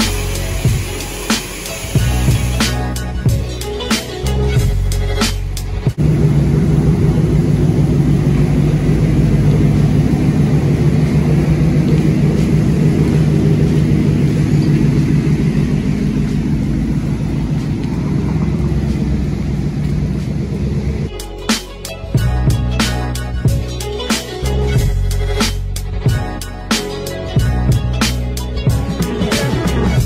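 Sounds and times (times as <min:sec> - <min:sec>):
pickup truck exhaust rumble: 0:04.3 - 0:21.1.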